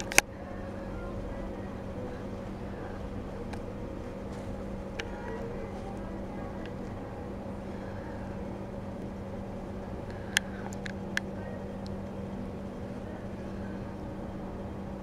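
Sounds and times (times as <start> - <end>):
sharp clicks: 0.0 - 0.3
low machine hum: 0.0 - 15.0.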